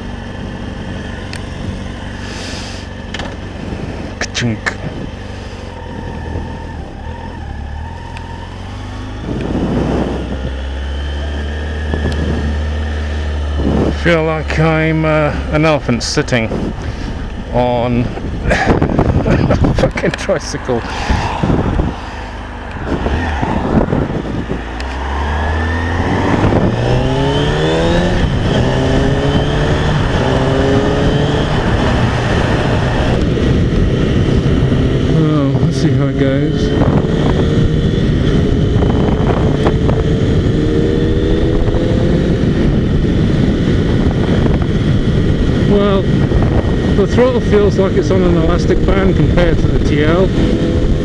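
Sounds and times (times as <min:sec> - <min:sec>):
motorcycle engine accelerating: 0:00.0 - 0:51.0
wind noise: 0:03.3 - 0:51.0
motorcycle engine pulling away: 0:22.0 - 0:47.2.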